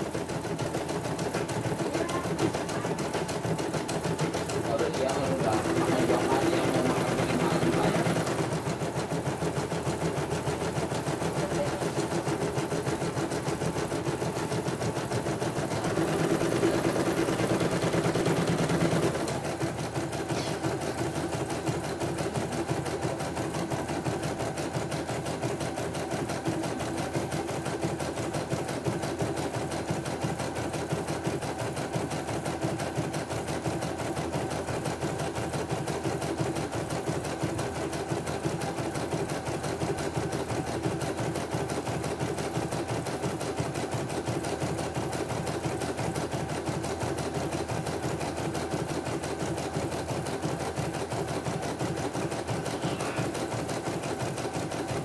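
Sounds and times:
embroidery machine clattering: 1.4s - 9.0s.

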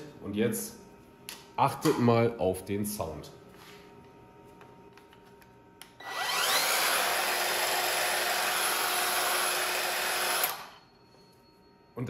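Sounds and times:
saw motor whining: 6.0s - 10.8s.

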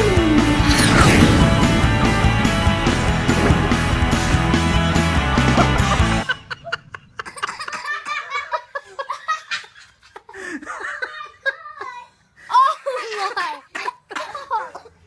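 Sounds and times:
background music: 0.0s - 6.2s
children laughing and giggling: 6.1s - 15.0s.

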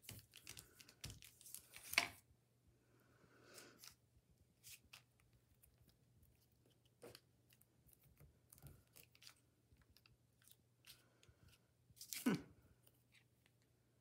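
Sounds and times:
paper handling: 0.0s - 2.2s.

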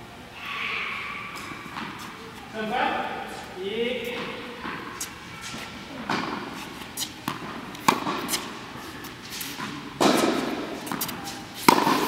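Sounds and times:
tennis ball hit with rackets: 6.0s - 8.6s, 9.4s - 12.0s
ball bouncing on court: 7.2s - 8.4s, 10.0s - 12.0s.

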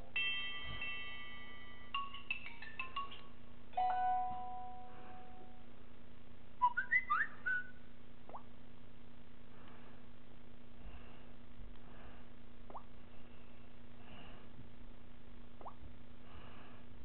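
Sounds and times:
rising whistle-like chirps: 6.6s - 7.8s.

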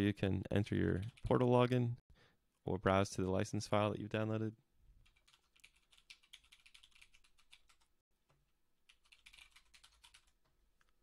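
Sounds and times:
faint computer keyboard typing: 5.0s - 11.0s.

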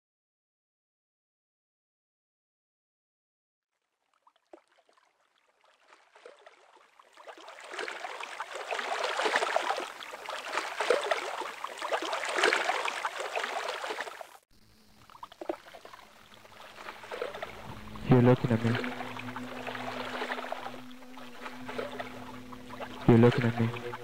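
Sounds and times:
river water lapping and splashing: 3.7s - 24.0s
steady low hum: 14.5s - 24.0s.

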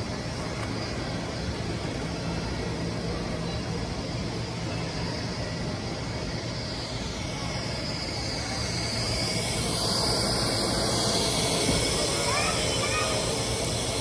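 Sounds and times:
high hiss: 0.0s - 14.0s
steady rushing noise: 0.0s - 14.0s.

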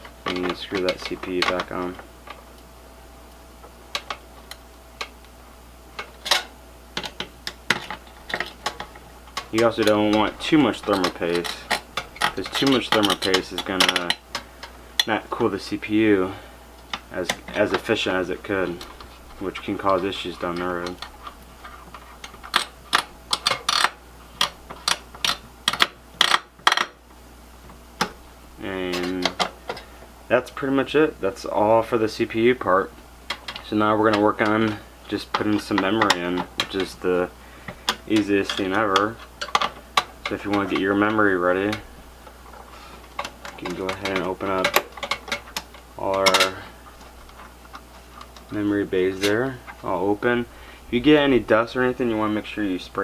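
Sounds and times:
light metal and plastic clicks: 37.7s - 41.9s.

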